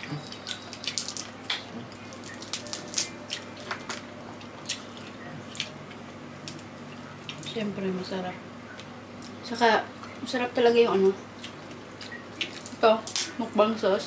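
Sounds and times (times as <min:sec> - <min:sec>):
crab shell cracking: 0:00.5 - 0:04.0.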